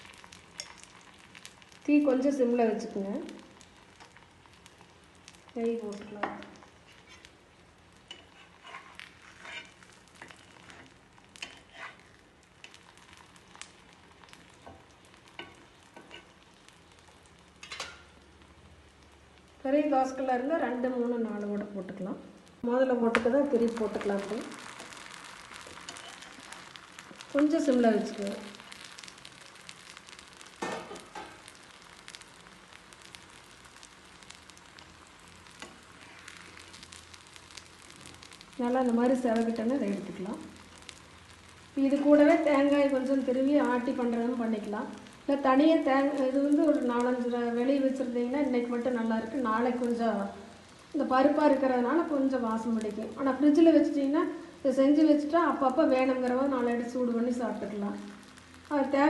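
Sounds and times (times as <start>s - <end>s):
ghee sizzling faintly: 0.0s - 59.0s
metal spatula scraping pan: 6.8s - 7.3s, 8.1s - 12.1s.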